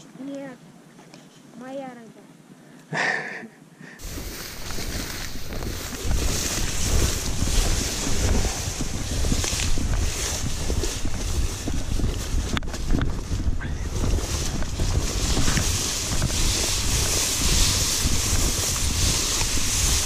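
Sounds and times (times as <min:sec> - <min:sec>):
wind buffeting microphone: 0:04.0 - 0:20.0.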